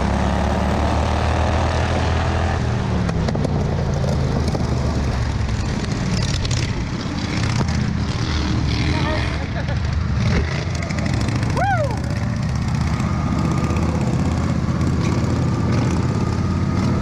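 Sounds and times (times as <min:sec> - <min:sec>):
lawnmower engine running: 0:09.3 - 0:17.0.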